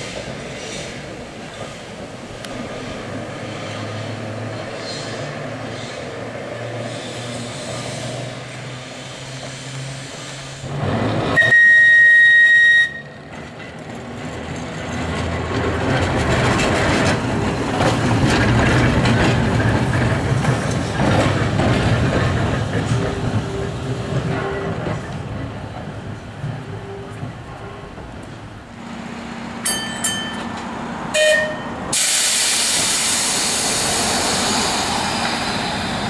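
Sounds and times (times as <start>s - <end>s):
tram passing hum: 0.0s - 36.0s
tram whistle blast: 11.3s - 13.3s, 31.1s - 33.8s
wheels clattering over track: 13.2s - 28.4s.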